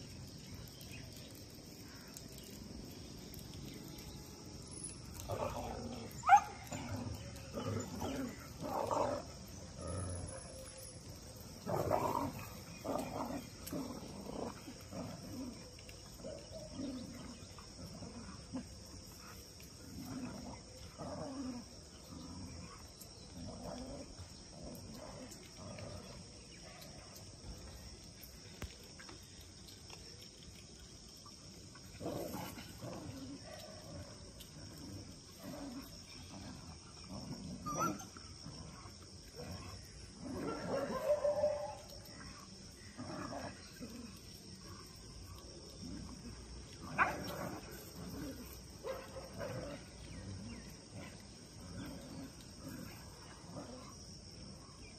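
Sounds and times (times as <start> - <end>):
lions growling: 31.9 - 41.0, 45.7 - 54.1.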